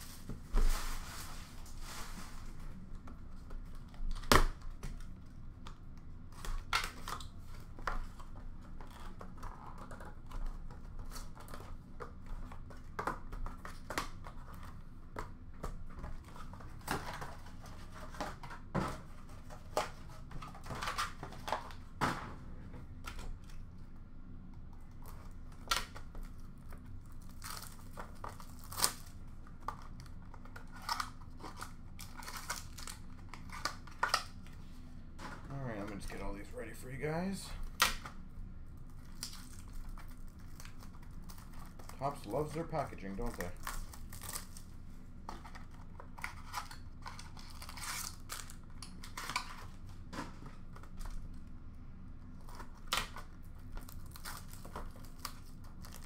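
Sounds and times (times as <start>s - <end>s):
cardboard rustling: 0.0s - 4.2s
plastic wrap crinkling and tearing: 25.0s - 34.5s, 38.8s - 49.9s, 52.2s - 56.0s.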